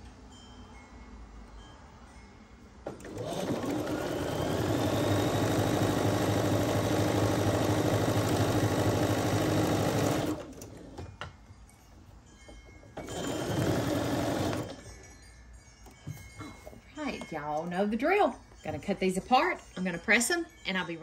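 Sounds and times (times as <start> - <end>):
sewing machine stitching: 2.9 - 10.9, 13.0 - 14.8.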